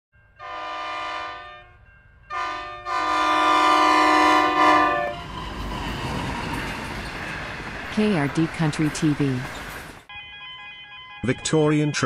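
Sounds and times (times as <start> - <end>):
train air horn blasts: 0.4 - 5.2.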